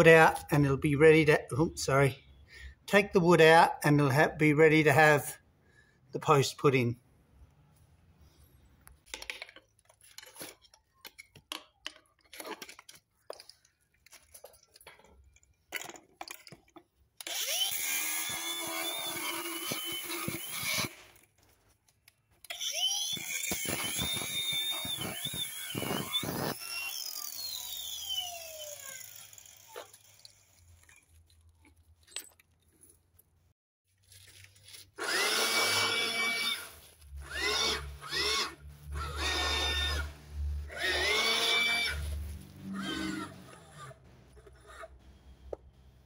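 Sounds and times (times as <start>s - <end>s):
angle grinder cutting metal: 17.2s - 21.0s, 22.5s - 30.3s, 35.0s - 45.0s
grinder disc winding down: 22.5s - 30.2s, 35.0s - 44.8s.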